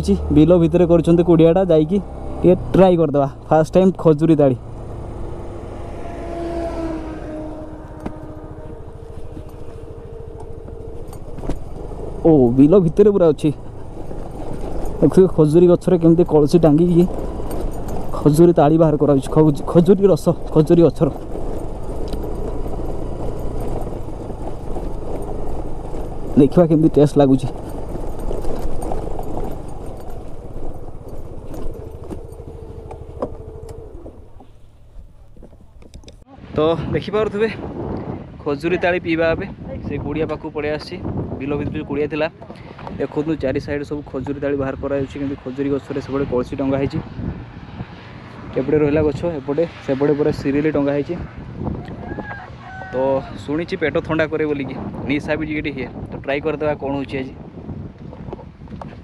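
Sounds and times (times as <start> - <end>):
vehicle passing: 0.0 - 36.6, 45.0 - 53.8
motorcycle engine and wind rumble: 0.0 - 59.0
sharp clicks and rattles: 9.0 - 36.3.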